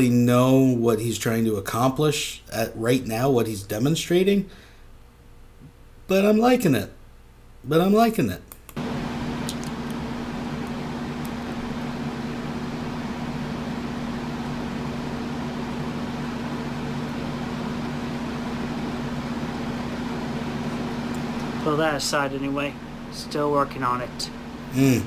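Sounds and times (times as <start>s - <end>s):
machine hum with hiss: 8.8s - 25.0s.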